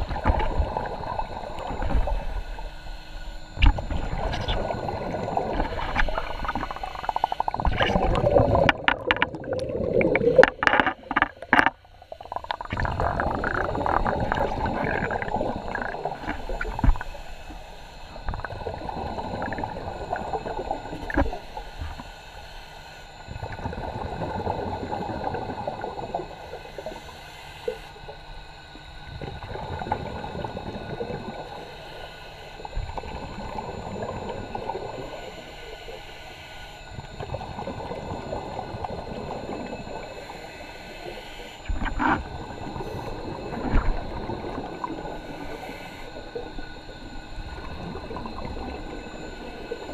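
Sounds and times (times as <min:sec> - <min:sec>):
underwater gurgling bubbles: 0:00.0 - 0:22.2, 0:23.1 - 0:49.9.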